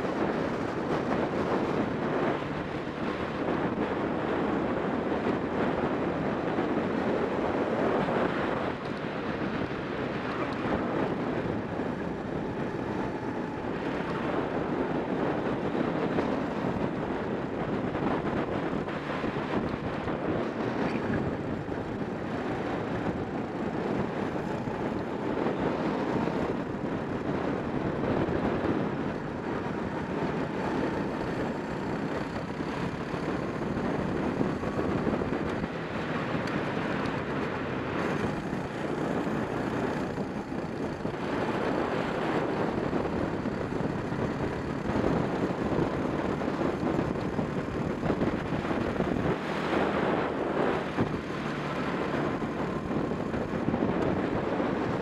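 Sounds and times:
kart engine running: 0.0 - 55.0
wind buffeting microphone: 0.0 - 55.0.

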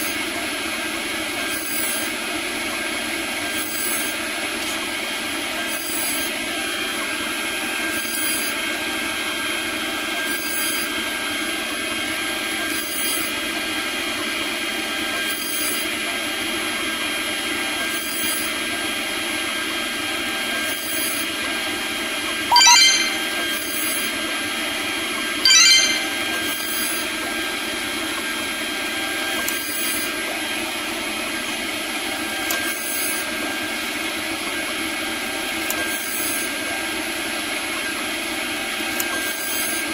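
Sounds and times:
end mill cutting plastic: 0.0 - 2.2
router spindle whine: 0.0 - 13.8.

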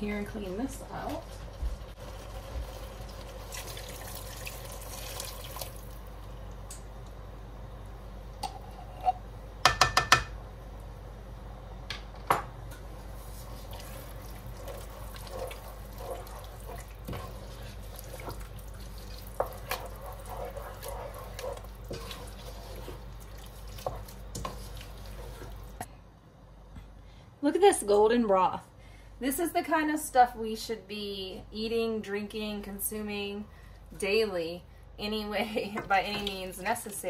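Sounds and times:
wooden spatula stirring soup: 0.0 - 5.4, 13.0 - 25.9.

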